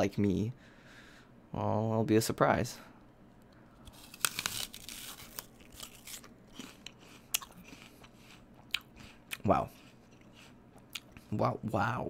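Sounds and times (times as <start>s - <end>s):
biting crunchy apple: 3.8s - 11.3s
chewing with soft crunches: 5.4s - 11.4s.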